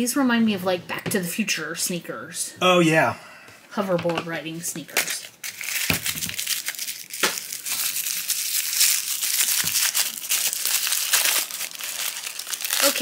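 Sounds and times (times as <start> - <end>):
paper wrapper crinkling and tearing: 4.9 - 13.0.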